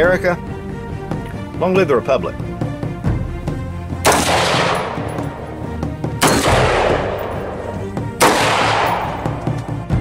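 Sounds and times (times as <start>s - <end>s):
background music: 0.0s - 10.0s
rifle shots echoing: 4.0s - 5.6s, 6.2s - 9.8s.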